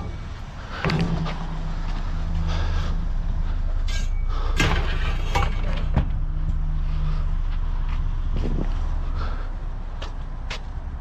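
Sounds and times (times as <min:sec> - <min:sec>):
vehicle engine idling: 0:00.0 - 0:11.0
sharp knocks and clatters: 0:00.8 - 0:02.2.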